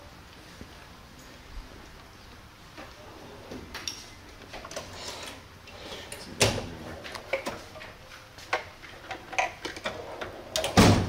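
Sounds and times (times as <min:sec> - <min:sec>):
metal drawers sliding open and shut: 0:03.1 - 0:11.0.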